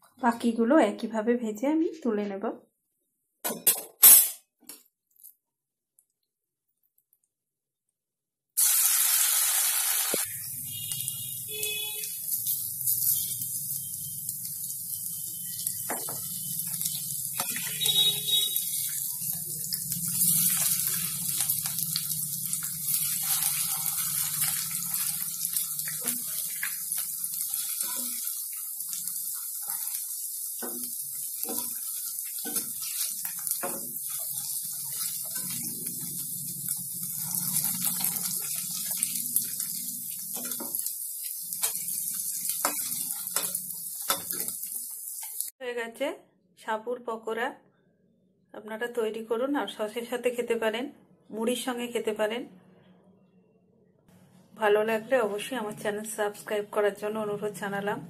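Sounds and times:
deep-frying sizzle in oil: 0:08.6 - 0:45.6
spatula scraping against pan: 0:14.9 - 0:19.4, 0:22.6 - 0:45.5.

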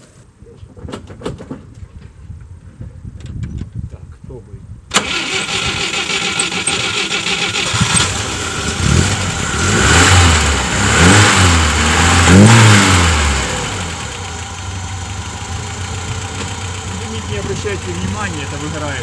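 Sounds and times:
car engine revving and idling: 0:06.1 - 0:19.0.

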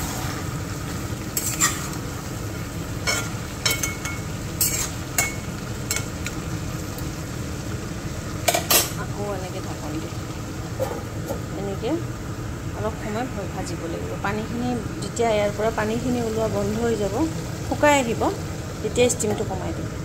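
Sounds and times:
meat sizzling: 0:00.0 - 0:20.0.

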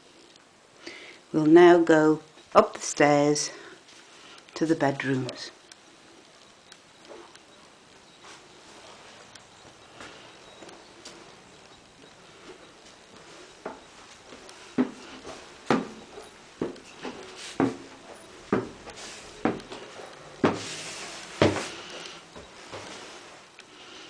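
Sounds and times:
footsteps on wooden stairs: 0:12.4 - 0:23.1.

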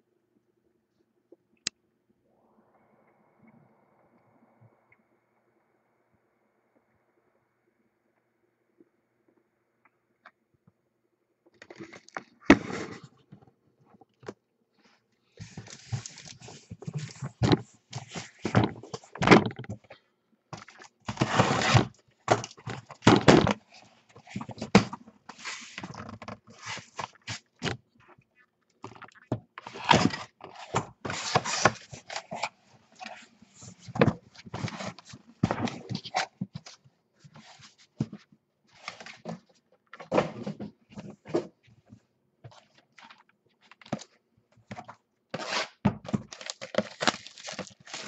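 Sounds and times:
cardboard scraping and thunking: 0:21.1 - 0:27.8, 0:33.5 - 0:36.6
box cutter slitting packing tape: 0:45.4 - 0:45.8.

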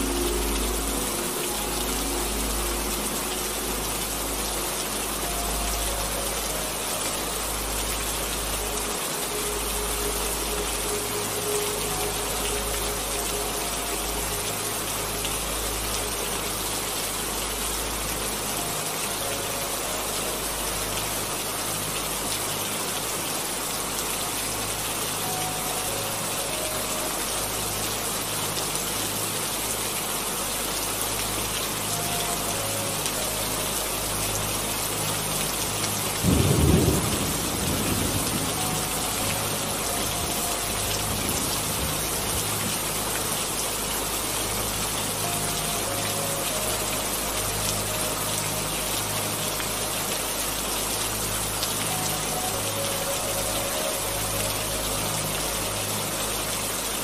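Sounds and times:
heavy rain: 0:00.0 - 0:57.0
thunder clap and rumble: 0:36.3 - 0:39.2.

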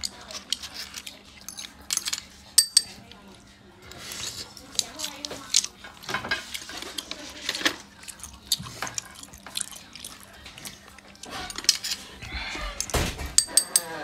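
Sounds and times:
clam shells clicking in steel bowl: 0:00.0 - 0:03.0, 0:13.4 - 0:14.0
wet eating sounds: 0:03.8 - 0:12.9.

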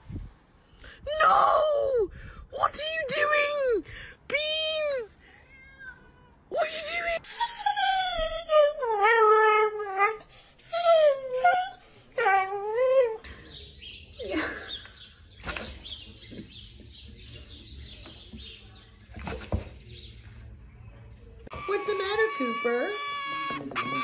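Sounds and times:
dog whining howls: 0:07.2 - 0:12.8.

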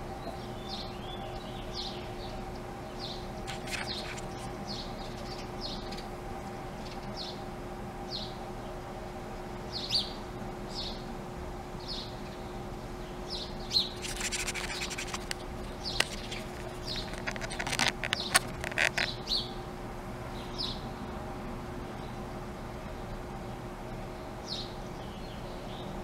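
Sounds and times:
faint steady hum: 0:00.0 - 0:26.0
songbirds chirping: 0:00.0 - 0:26.0
scratching and clicking: 0:03.4 - 0:04.5, 0:14.0 - 0:19.1.

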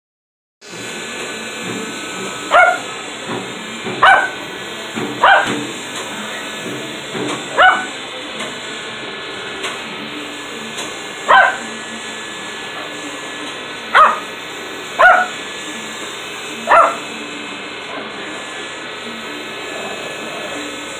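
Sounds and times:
toy helicopter motor whine: 0:00.6 - 0:20.9
small dog barking: 0:02.5 - 0:02.9, 0:04.0 - 0:04.4, 0:05.2 - 0:05.6, 0:07.6 - 0:08.0, 0:11.3 - 0:11.6, 0:13.9 - 0:14.3, 0:15.0 - 0:15.4, 0:16.7 - 0:17.0.

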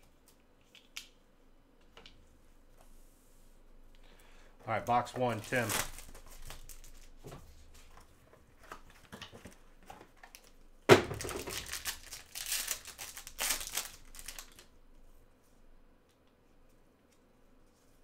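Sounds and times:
foil crinkling: 0:04.8 - 0:07.2, 0:11.1 - 0:14.7
foil wrapper rustling: 0:04.9 - 0:07.2, 0:11.1 - 0:14.7
foil wrapper ripping: 0:05.3 - 0:07.1, 0:11.2 - 0:14.7.

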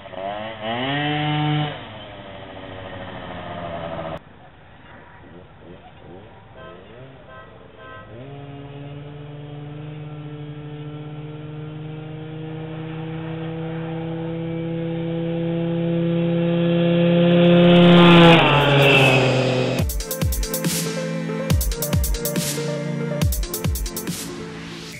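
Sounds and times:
motor scooter passing by: 0:00.0 - 0:04.2, 0:04.9 - 0:19.9.

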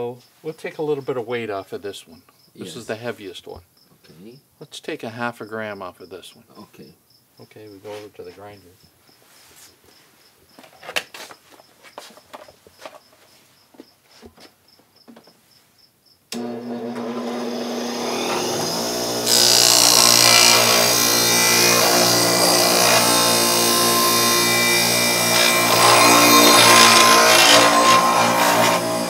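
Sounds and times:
quiet footsteps: 0:06.5 - 0:15.9
bench grinder motor humming: 0:16.4 - 0:29.0
metal grinding on wheel: 0:16.4 - 0:29.0.

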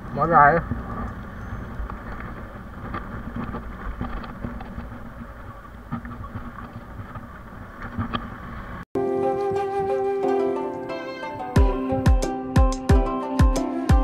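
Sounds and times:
knocks and rattles of bike: 0:00.6 - 0:08.8.

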